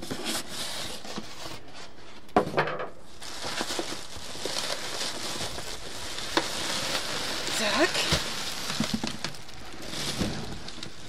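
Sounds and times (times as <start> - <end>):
plastic bag rustling: 3.0 - 11.0.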